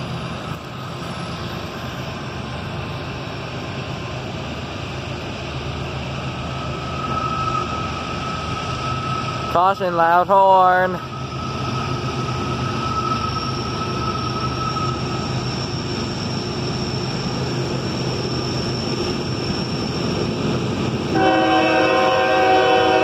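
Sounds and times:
diesel locomotive rumble: 0.0 - 23.0
locomotive air horn chord: 21.1 - 23.0.

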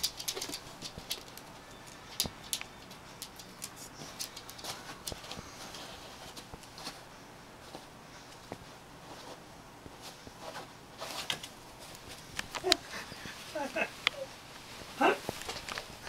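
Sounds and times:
dog claws scratching and clicking: 0.0 - 5.4.

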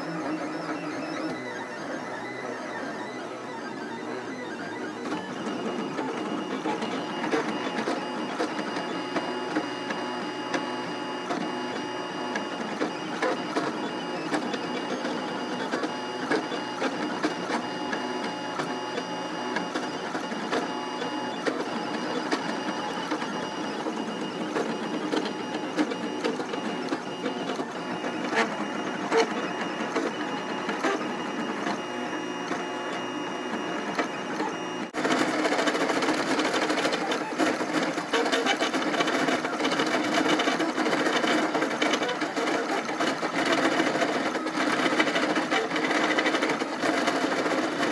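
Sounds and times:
stepper motors whining and whirring: 0.0 - 35.0.

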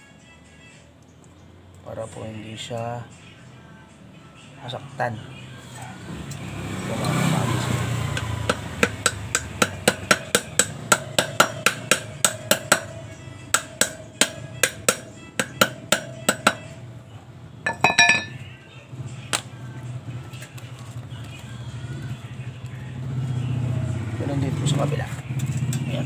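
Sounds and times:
hammer striking metal: 8.2 - 16.7, 17.7 - 18.4
ringing metal clink: 17.7 - 18.5.

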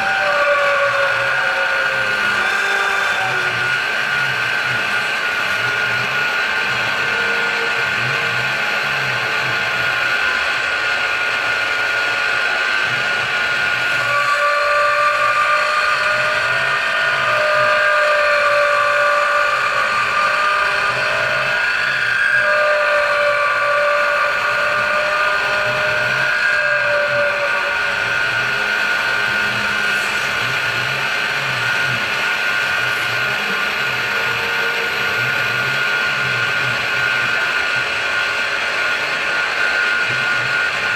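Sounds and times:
milling machine cutting metal: 0.0 - 40.9
whining cutter tone: 0.0 - 40.9.

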